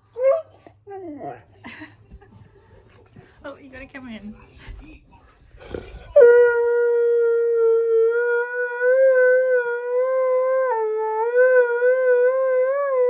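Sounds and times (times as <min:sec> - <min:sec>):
dog howling: 0:06.1 - 0:13.0.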